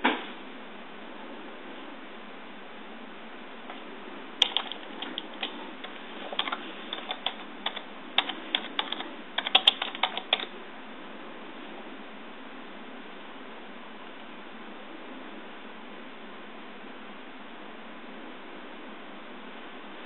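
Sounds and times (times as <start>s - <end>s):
keyboard typing: 4.4s - 10.5s.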